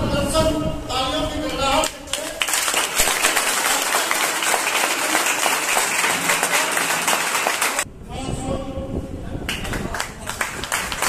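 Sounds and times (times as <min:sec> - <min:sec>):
audience applauding: 0:02.1 - 0:07.8, 0:09.5 - 0:11.0.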